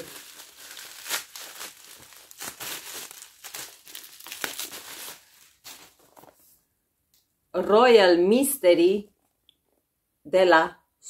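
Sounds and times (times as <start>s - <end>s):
packaging crinkling and rustling: 0.0s - 6.5s.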